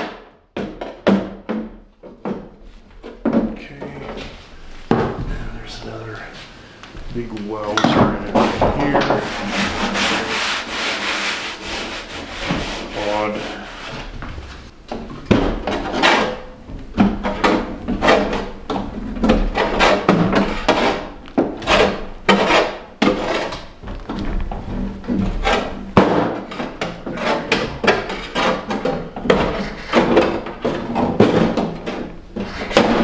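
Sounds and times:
rubbing and scraping on steel: 0:07.6 - 0:14.7, 0:17.1 - 0:23.8, 0:24.6 - 0:33.0.

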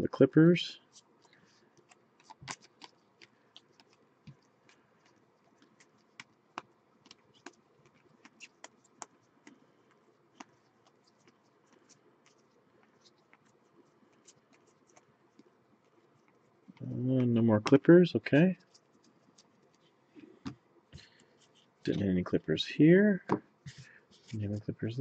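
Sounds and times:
cards flipping clicks and rustles: 0:00.9 - 0:13.5.

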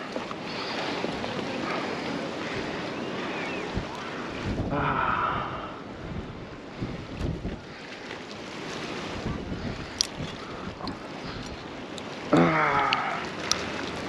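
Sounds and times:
faint voices: 0:00.0 - 0:05.8
ocean surf: 0:00.0 - 0:14.0
wind buffeting microphone: 0:00.0 - 0:14.0.

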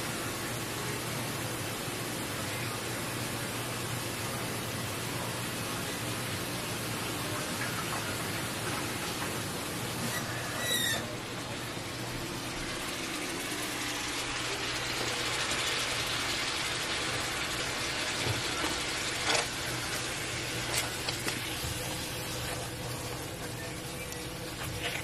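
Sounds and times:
short squeak: 0:10.0 - 0:11.2.

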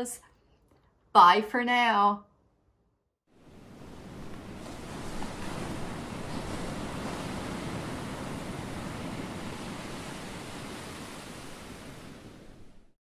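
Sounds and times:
ocean waves washing ashore: 0:03.3 - 0:13.0.

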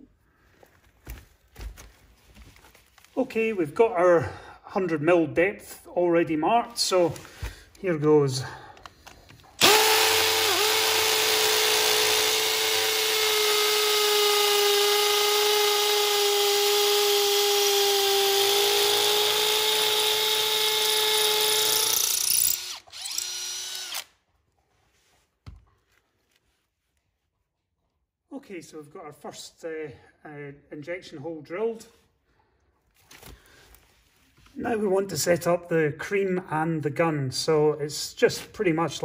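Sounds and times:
hammer drill boring into brick: 0:09.6 - 0:24.1.

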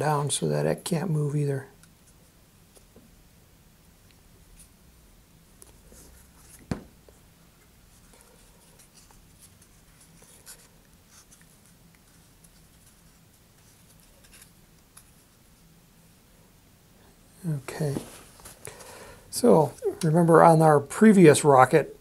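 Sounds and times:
thump: 0:06.7 - 0:06.9
paper tube rustling: 0:17.9 - 0:18.6.

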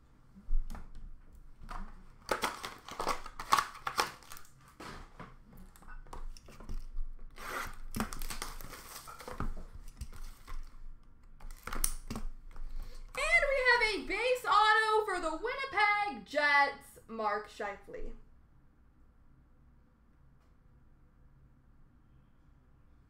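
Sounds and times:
packaging tearing and crinkling: 0:02.2 - 0:05.1, 0:06.5 - 0:10.8, 0:11.4 - 0:12.3.

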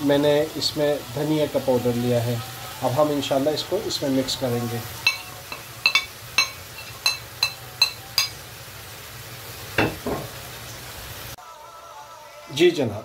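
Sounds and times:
chicken sizzling: 0:00.0 - 0:13.0
metal spoon clinking on pan: 0:05.0 - 0:08.4
spoon knocking pan: 0:05.0 - 0:08.4, 0:09.8 - 0:10.4.

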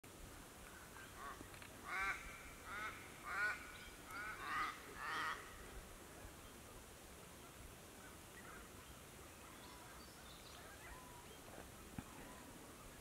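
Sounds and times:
bird calling: 0:00.6 - 0:05.7.

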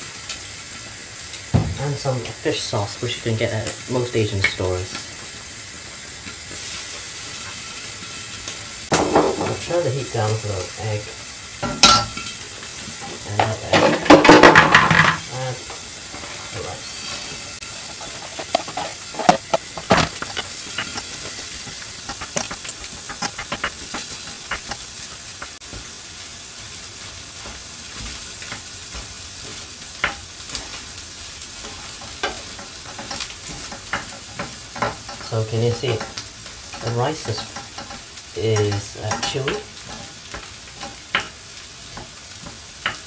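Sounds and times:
rice and egg sizzling in a pan: 0:00.0 - 0:43.0
wooden spatula scraping a pan: 0:12.7 - 0:26.0, 0:26.6 - 0:43.0.

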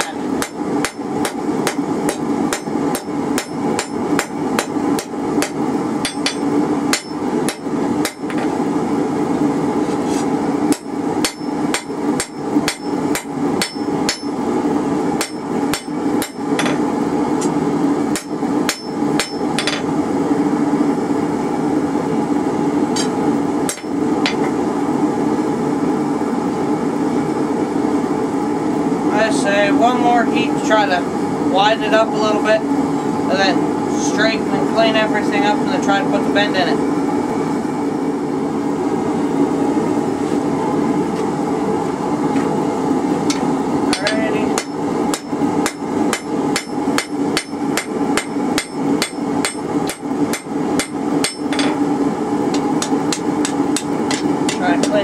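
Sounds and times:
hammer striking metal on anvil: 0:00.0 - 0:08.5, 0:10.7 - 0:14.4, 0:15.2 - 0:16.8, 0:18.1 - 0:19.9, 0:23.0 - 0:24.6, 0:43.3 - 0:51.8, 0:52.8 - 0:55.0
steady hum: 0:00.0 - 0:55.0.

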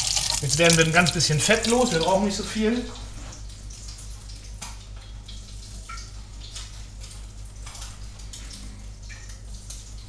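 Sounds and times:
hot fat crackling in a pan: 0:00.0 - 0:02.6
fat being poured: 0:00.0 - 0:02.7
steady low hum: 0:00.0 - 0:10.0.

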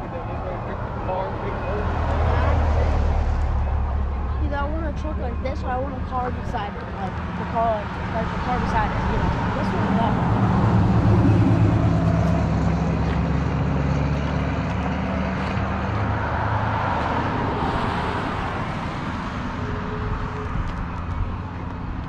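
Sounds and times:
vehicle engine humming: 0:00.0 - 0:22.0.

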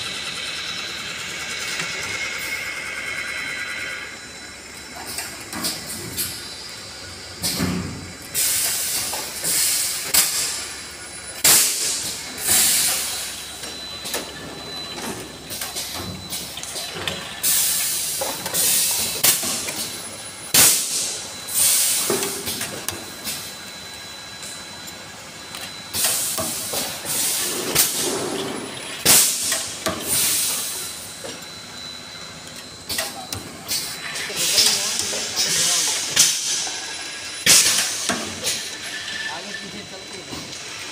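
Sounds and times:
pneumatic air hisses: 0:07.4 - 0:10.6, 0:11.4 - 0:13.3, 0:20.5 - 0:22.6, 0:25.9 - 0:28.2, 0:29.0 - 0:31.0, 0:33.7 - 0:36.8.

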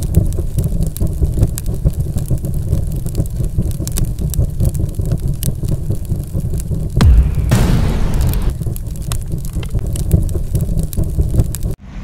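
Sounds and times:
dense crackling: 0:00.0 - 0:11.8
low pulsing rumble: 0:03.3 - 0:11.8.

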